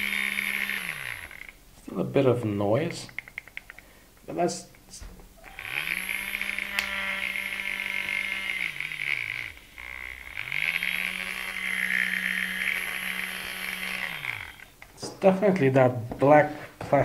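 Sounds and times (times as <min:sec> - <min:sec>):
buzzing rattle: 0:00.0 - 0:01.6, 0:05.4 - 0:14.8
milk frother motor spinning: 0:00.0 - 0:01.6, 0:05.4 - 0:14.8.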